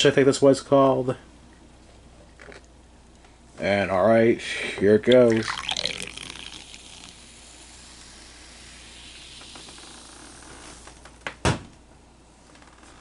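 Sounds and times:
soda fizzing: 5.1s - 10.9s.

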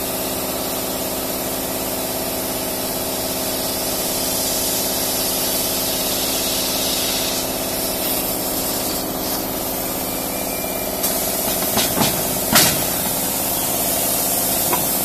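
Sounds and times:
mechanical hum: 0.0s - 15.0s
blowing air hiss: 4.0s - 15.0s.

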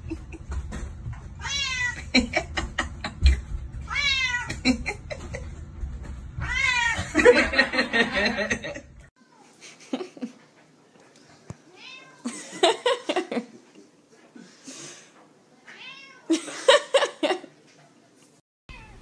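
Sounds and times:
cat meowing: 1.4s - 2.0s, 3.9s - 4.5s, 6.4s - 7.0s, 15.7s - 16.3s, 18.7s - 19.0s.

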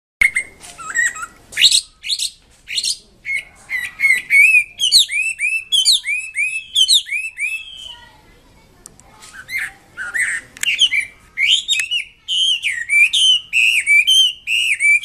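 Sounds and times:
bird singing whistled phrases: 0.2s - 8.1s, 9.4s - 15.0s.

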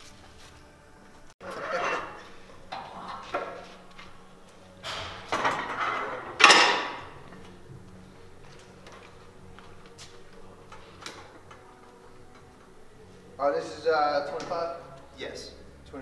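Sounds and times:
weight plates clanking on barbell: 4.8s - 7.2s.

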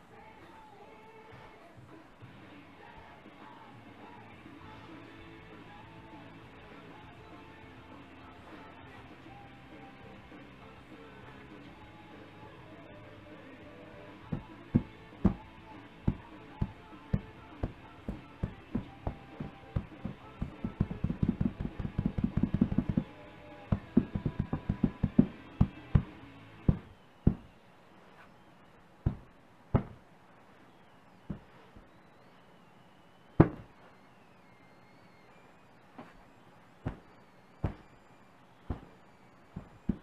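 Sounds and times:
paws patting inflated belly: 16.1s - 23.1s.

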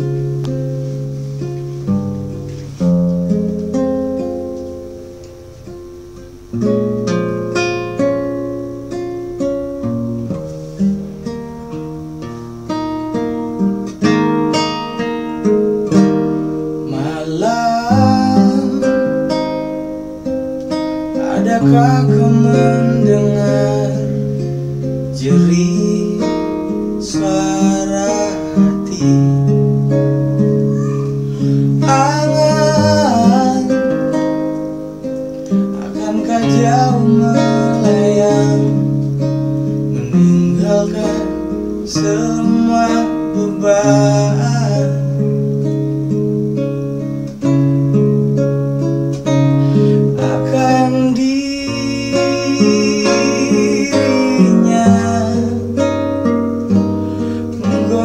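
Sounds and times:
acoustic guitar picking chords: 0.0s - 58.0s
man singing: 16.8s - 19.4s, 21.0s - 29.7s, 30.8s - 34.3s, 35.5s - 39.0s, 39.9s - 45.4s, 49.7s - 56.0s, 57.4s - 58.0s.

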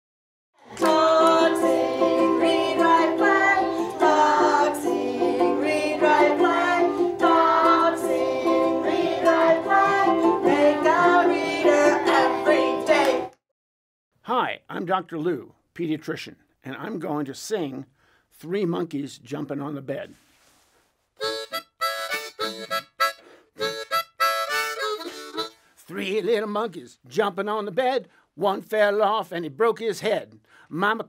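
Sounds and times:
theme music with plucked strings: 0.8s - 13.3s.

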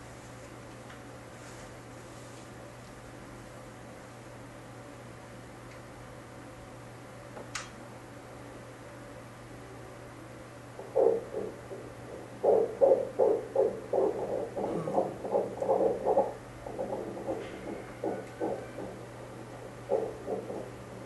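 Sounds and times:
low steady hum: 0.0s - 21.0s
doppler heartbeat pulsing: 10.8s - 21.0s.

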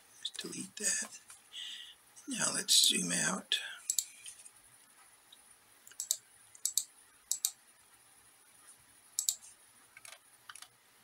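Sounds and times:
computer mouse clicking: 3.9s - 4.1s, 5.9s - 7.6s, 9.2s - 10.7s.

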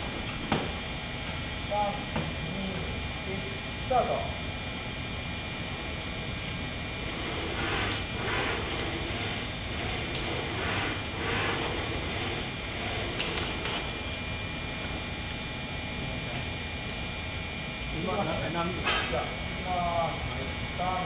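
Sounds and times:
steady mechanical hum: 0.0s - 21.0s
robot leg actuators whirring: 5.7s - 15.2s.

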